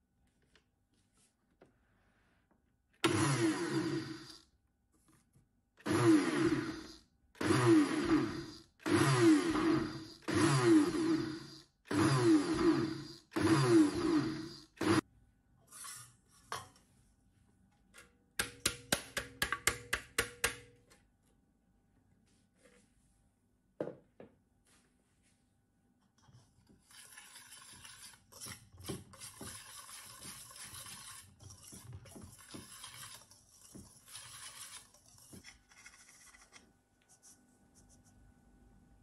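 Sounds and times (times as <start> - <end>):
food processor pulsing: 3.0 - 4.4, 5.8 - 15.0.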